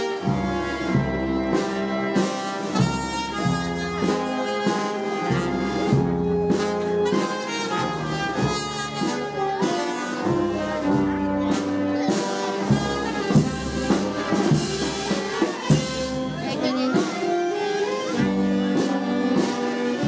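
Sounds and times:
brass band playing: 0:00.0 - 0:20.0
drum beats: 0:00.0 - 0:20.0.

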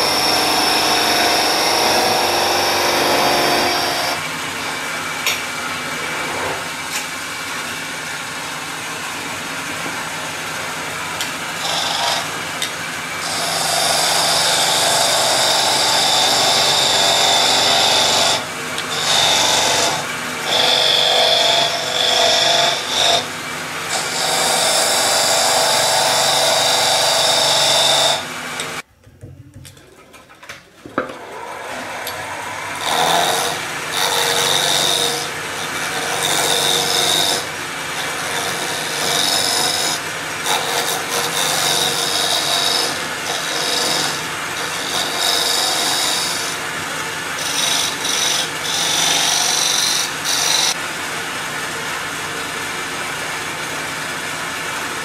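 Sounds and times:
wood lathe tool scraping wood: 0:00.0 - 0:04.2, 0:11.6 - 0:23.3, 0:23.9 - 0:28.2, 0:31.2 - 0:46.6, 0:47.3 - 0:50.8.

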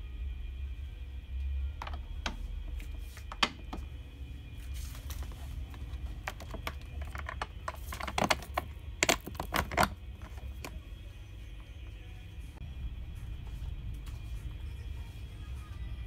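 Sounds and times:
low hum: 0:00.0 - 0:16.0
plastic and metal parts clicking: 0:06.2 - 0:10.7.

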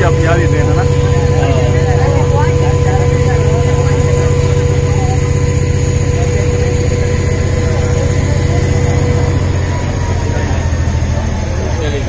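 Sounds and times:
diesel locomotive engine throbbing: 0:00.0 - 0:12.0
thin steady whine: 0:00.0 - 0:12.0.

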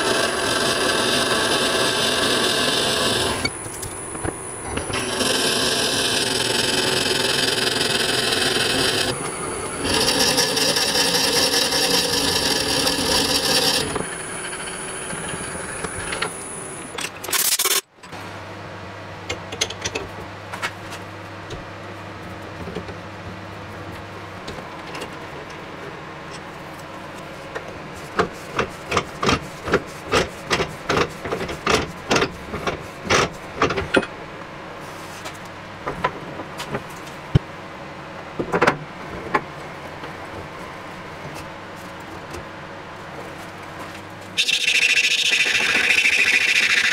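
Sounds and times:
lathe bit scraping wood: 0:00.0 - 0:16.9, 0:44.4 - 0:46.9.

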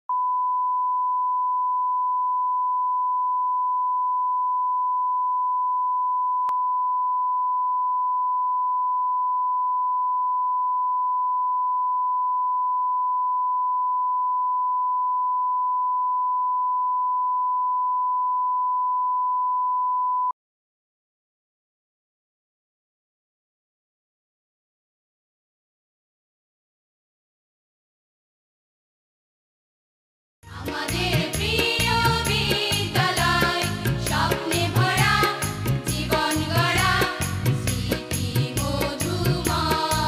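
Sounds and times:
steady pure test tone beep: 0:00.1 - 0:20.3.

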